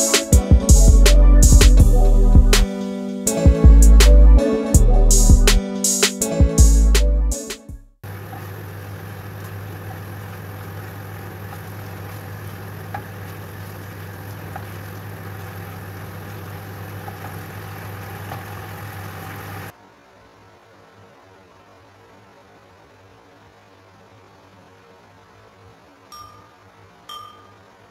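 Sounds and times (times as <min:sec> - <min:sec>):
sauce simmering and bubbling: 0:08.1 - 0:19.7
faint hiss: 0:19.1 - 0:27.9
spoon clicks: 0:26.1 - 0:26.5, 0:27.1 - 0:27.6.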